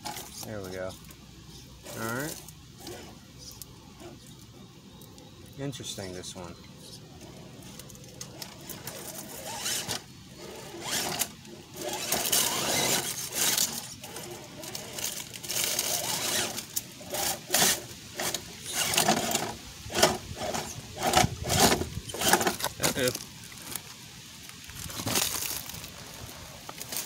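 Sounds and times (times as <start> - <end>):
electric motor and gears whining: 0.0 - 5.2, 5.8 - 23.9
tyres scraping on rock: 1.6 - 4.4, 7.2 - 24.0.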